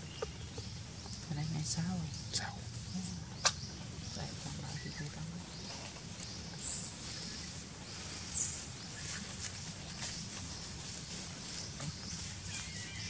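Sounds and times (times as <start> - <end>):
faint low voice murmuring: 11.4 - 12.9.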